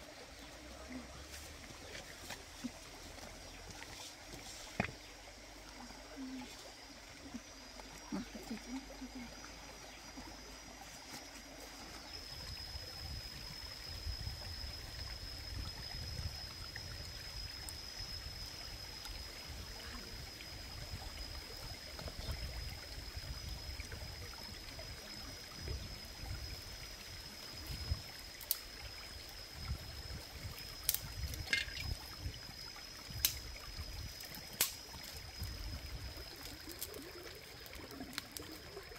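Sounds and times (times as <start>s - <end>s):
running stream water: 0.0s - 38.9s
dry sticks snapping: 34.5s - 34.8s.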